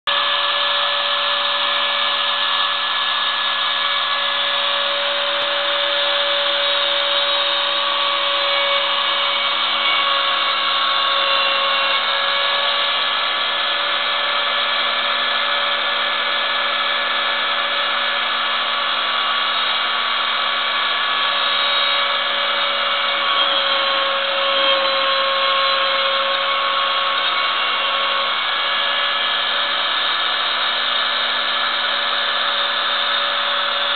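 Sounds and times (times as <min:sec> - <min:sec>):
cnc router spindle whining: 0:00.1 - 0:33.9
end mill carving wood: 0:00.1 - 0:33.9.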